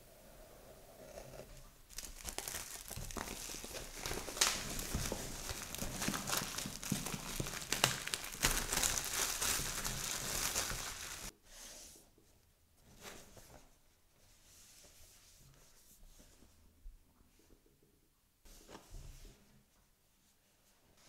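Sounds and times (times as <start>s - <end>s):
plastic wrap crinkling: 1.9s - 11.3s.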